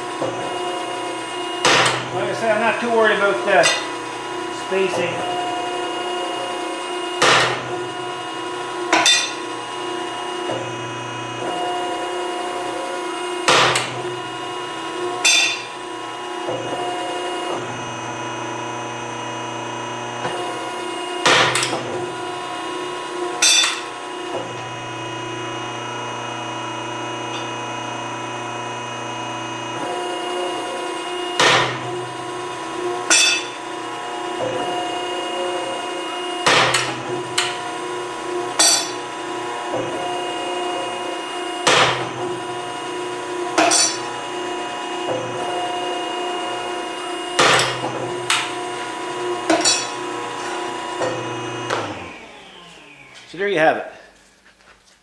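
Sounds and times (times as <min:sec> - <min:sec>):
pump motor hum: 0:00.0 - 0:53.3
machine punching steel plate bangs: 0:01.6 - 0:02.1.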